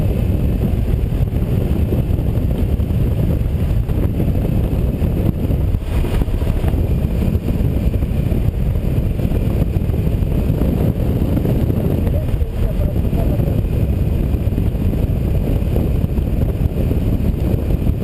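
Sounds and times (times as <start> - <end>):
motorcycle engine drone: 0.0 - 18.0
wind rushing over microphone: 0.0 - 18.0.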